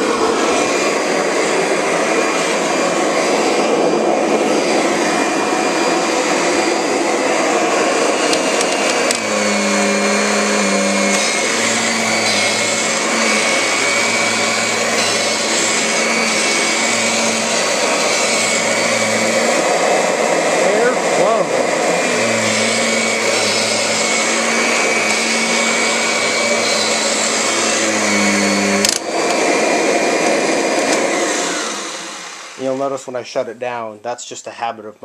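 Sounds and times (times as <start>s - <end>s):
vacuum cleaner running: 0.0s - 33.4s
low vacuum hum: 3.6s - 28.8s.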